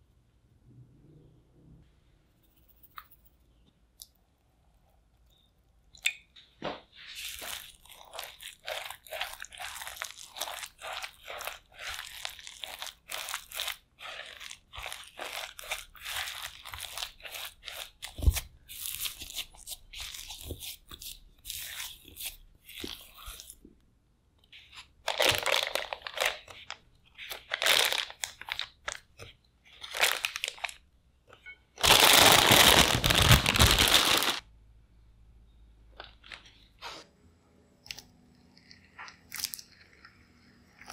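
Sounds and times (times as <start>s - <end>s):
spatula stirring stiff dough: 6.9s - 23.6s
plastic bag rustling: 7.2s - 20.6s, 25.0s - 30.8s, 31.8s - 34.4s.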